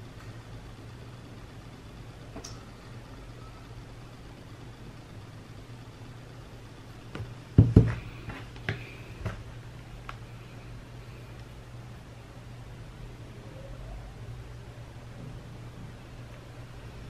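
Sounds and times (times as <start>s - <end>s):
steady low hum: 0.0s - 17.0s
knocks on a wooden desk: 7.2s - 8.0s.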